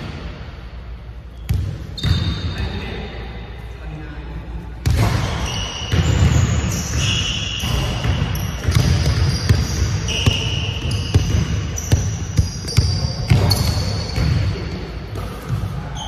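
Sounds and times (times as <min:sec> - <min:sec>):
sneakers squealing on court: 0:01.3 - 0:02.6, 0:04.9 - 0:14.6, 0:15.2 - 0:16.0
basketball bouncing on hardwood: 0:08.0 - 0:14.4.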